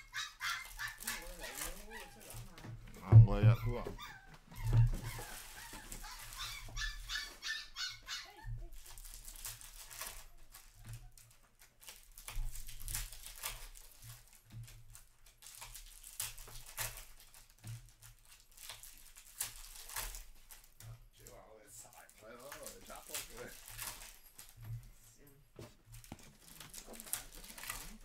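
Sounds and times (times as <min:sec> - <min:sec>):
dog whining: 0:00.0 - 0:02.6, 0:03.3 - 0:08.8
card packs rustling and clicking: 0:00.6 - 0:03.2, 0:04.9 - 0:07.4, 0:08.7 - 0:24.9, 0:25.6 - 0:28.0.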